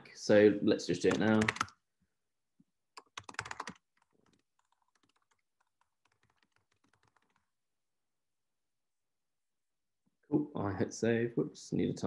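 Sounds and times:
typing on a keyboard: 0:01.0 - 0:01.7, 0:03.0 - 0:07.5.

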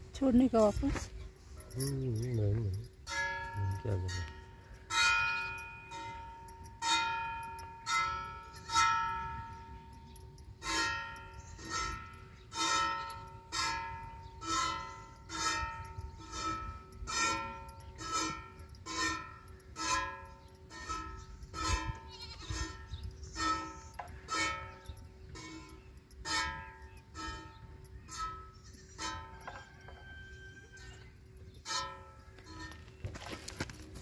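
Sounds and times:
plucked bell-like melody: 0:01.4 - 0:21.5.

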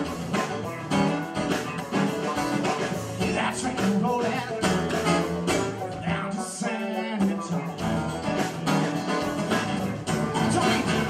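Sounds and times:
acoustic guitar strumming: 0:00.0 - 0:11.0
drums steady beat: 0:00.0 - 0:11.0
man singing: 0:03.1 - 0:08.5, 0:09.4 - 0:11.0.

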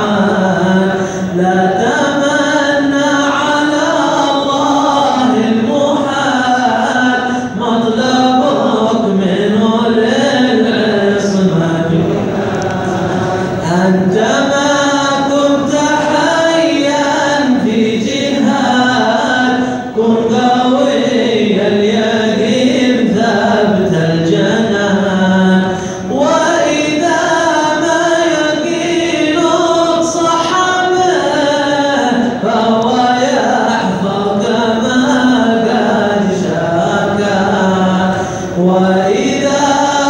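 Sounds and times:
men chanting together: 0:00.0 - 0:40.0.

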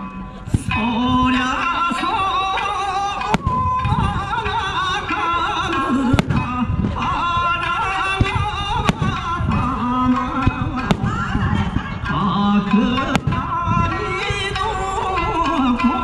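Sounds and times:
firework shells bursting: 0:03.2 - 0:04.6, 0:06.1 - 0:07.0, 0:08.2 - 0:11.9, 0:13.0 - 0:14.3.

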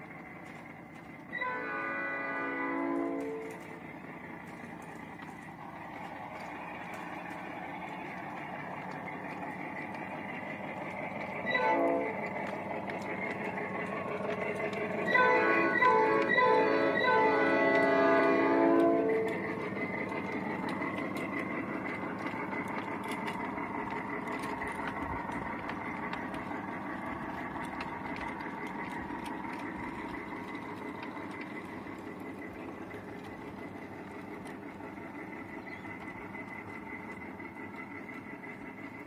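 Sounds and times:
miniature train whine and rumble: 0:00.0 - 0:39.0
rail clicks: 0:00.0 - 0:39.0.

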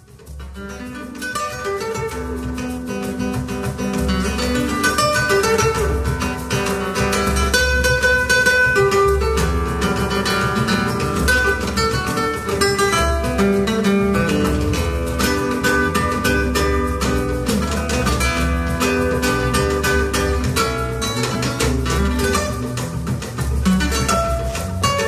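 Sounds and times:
nylon-string guitars playing: 0:00.0 - 0:25.0.

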